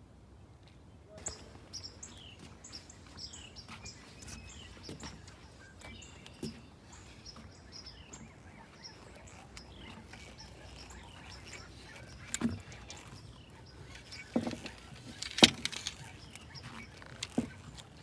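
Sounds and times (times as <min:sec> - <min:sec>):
small birds chirping: 0:00.6 - 0:18.0.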